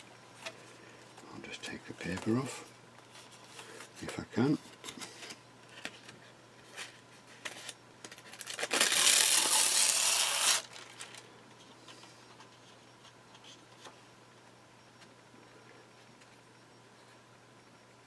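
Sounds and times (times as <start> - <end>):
paper peeling and rustling: 7.4 - 11.2.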